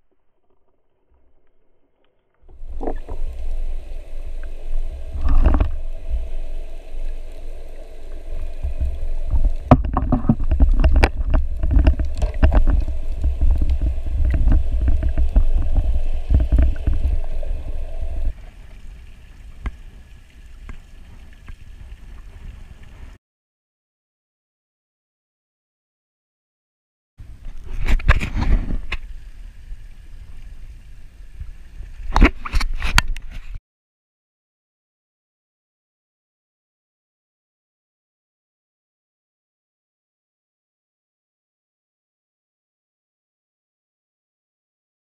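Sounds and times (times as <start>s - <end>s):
muffled underwater rumble: 0.0s - 23.2s
wind and water wash: 2.5s - 23.2s
sharp knocks and clicks: 9.4s - 12.8s.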